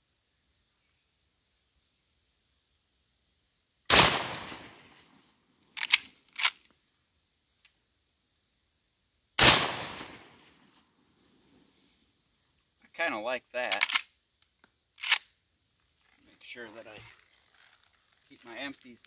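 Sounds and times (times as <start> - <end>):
rifle shots echoing: 3.9 - 5.0, 9.4 - 10.5
rifle lever metallic clacks: 5.8 - 6.6, 13.7 - 14.1, 15.0 - 15.2.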